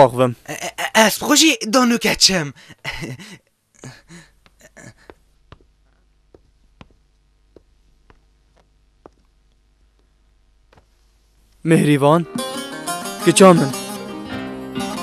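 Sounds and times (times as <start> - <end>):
footsteps on hard floor: 4.4 - 11.3.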